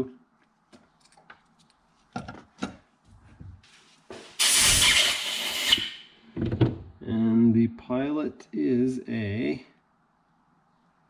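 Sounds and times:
compressed air blow gun hiss: 4.3s - 6.1s.

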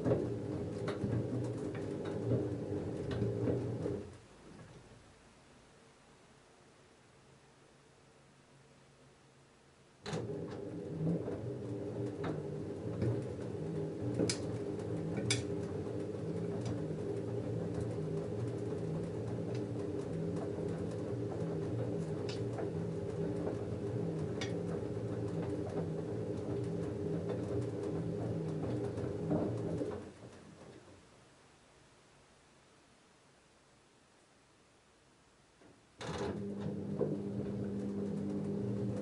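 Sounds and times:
washing machine drum tumbling: 0.0s - 4.1s, 10.2s - 30.7s
washing machine motor humming: 0.0s - 4.2s, 10.0s - 30.8s, 36.0s - 39.0s.

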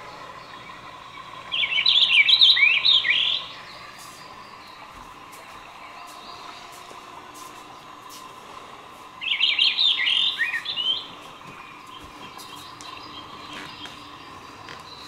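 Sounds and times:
faint high whine: 0.0s - 15.0s
bird chirping: 0.4s - 5.0s, 9.2s - 15.0s.

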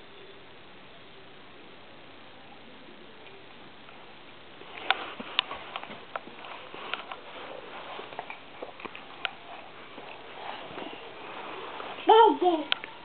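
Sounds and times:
low rustle: 4.0s - 13.0s.

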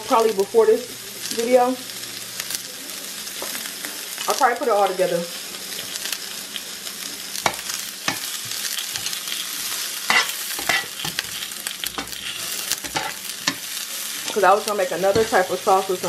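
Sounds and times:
onion rings sizzling in a frying pan: 0.0s - 16.0s
metal tongs clicking against a pan: 10.1s - 16.0s.

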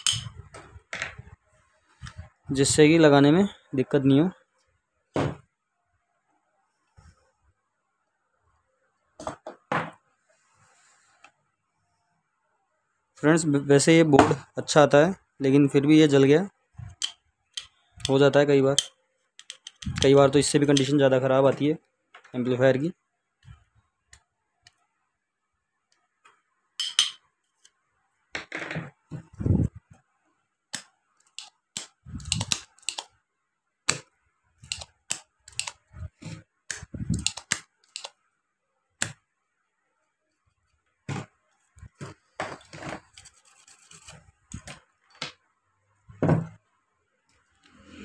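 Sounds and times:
clicks and taps on workbench: 18.8s - 20.0s.

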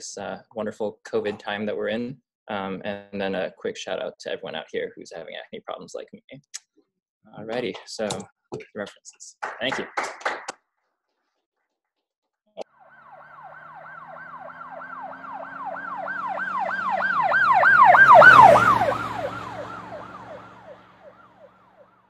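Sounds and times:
yelping siren: 12.6s - 22.0s
engine noise: 12.8s - 22.0s.

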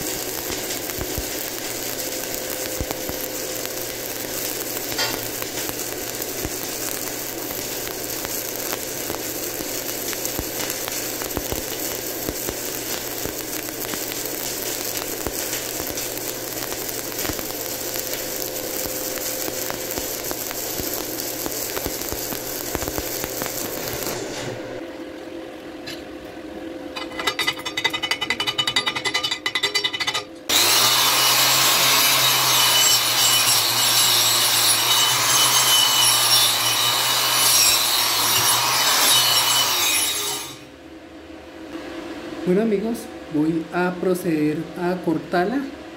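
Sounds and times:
welding arc crackling: 0.0s - 24.8s, 27.0s - 40.7s
angle grinder cutting steel: 27.0s - 40.6s.

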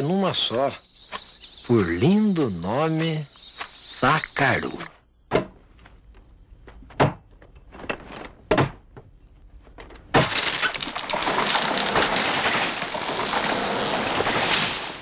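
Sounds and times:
tree falling through branches: 9.8s - 15.0s.

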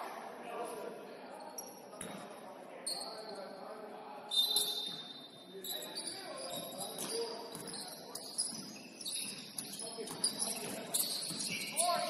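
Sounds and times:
sneakers squeaking on wooden floor: 4.3s - 12.0s.

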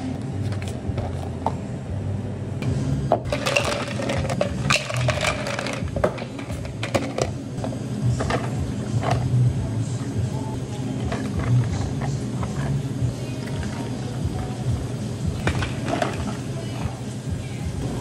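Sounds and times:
low machine hum: 0.0s - 18.0s
ice cubes clattering into glasses: 3.3s - 7.3s.

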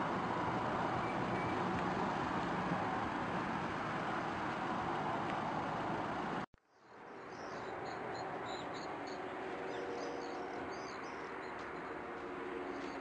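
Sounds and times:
roadside traffic noise: 0.0s - 13.0s
small birds chirping: 6.7s - 11.9s.

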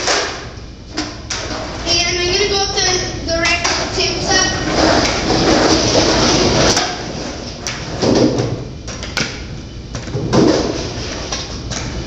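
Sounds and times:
skateboard clack: 0.0s - 0.5s
skateboard wheels rolling on concrete: 3.6s - 12.0s.

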